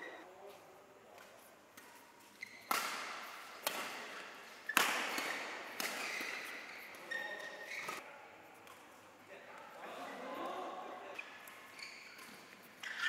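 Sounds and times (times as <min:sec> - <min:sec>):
rackets hitting shuttlecock: 0:01.8 - 0:08.0.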